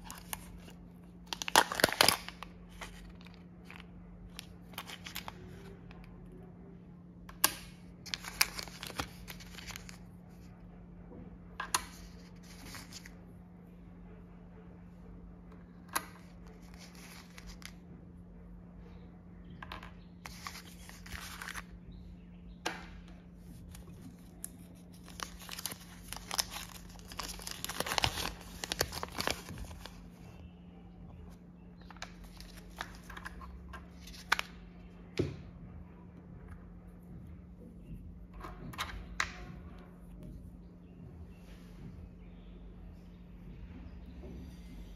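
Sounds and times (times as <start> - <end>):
plastic wrapping tearing and crinkling: 0.0 - 5.5, 8.0 - 10.0, 23.6 - 30.2.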